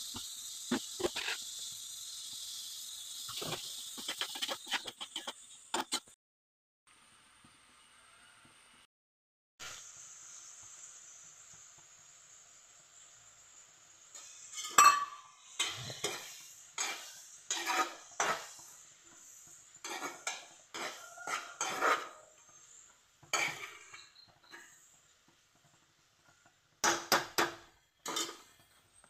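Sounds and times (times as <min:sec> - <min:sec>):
vegetables sizzling: 0:00.0 - 0:06.2, 0:09.6 - 0:29.0
metal spatula scraping a pan: 0:00.7 - 0:01.6, 0:03.2 - 0:06.2, 0:14.2 - 0:25.0, 0:25.6 - 0:28.9.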